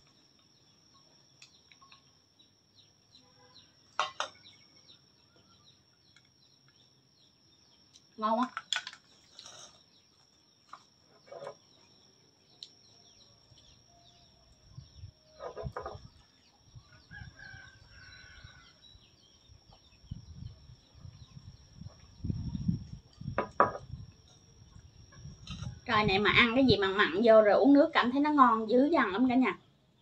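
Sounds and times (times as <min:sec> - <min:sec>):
rooster crowing: 0:16.8 - 0:18.9.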